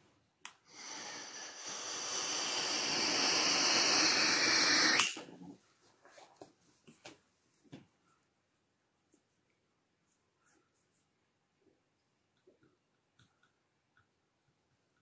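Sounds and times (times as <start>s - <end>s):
rushing hiss: 0.7s - 5.4s.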